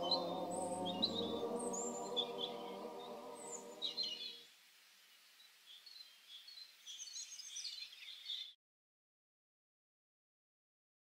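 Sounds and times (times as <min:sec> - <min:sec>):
music of sustained tones: 0:00.0 - 0:04.4
small birds chirping: 0:00.0 - 0:04.5, 0:05.1 - 0:08.6.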